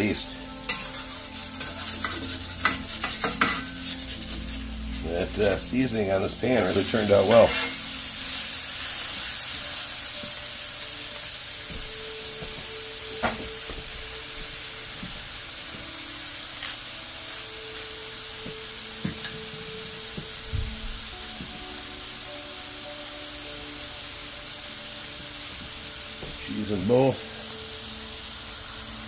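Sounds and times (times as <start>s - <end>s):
patties sizzling in pan: 0.0s - 29.0s.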